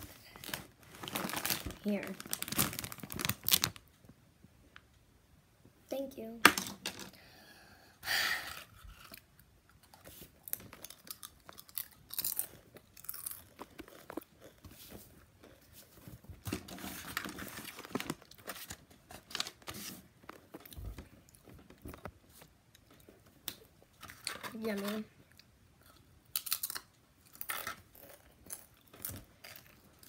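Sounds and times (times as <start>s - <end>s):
chips crunched and chewed: 8.9s - 14.6s, 23.5s - 30.0s.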